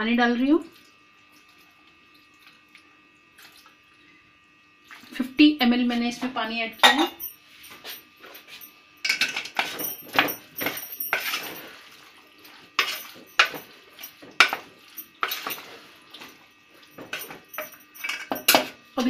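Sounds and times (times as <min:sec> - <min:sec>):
wooden spatula scraping metal pot: 0:11.1 - 0:11.8, 0:12.7 - 0:15.8.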